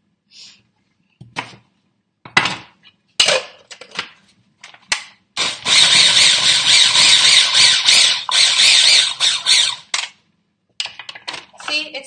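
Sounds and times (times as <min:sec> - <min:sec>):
food processor motor whirring: 0:05.4 - 0:09.9.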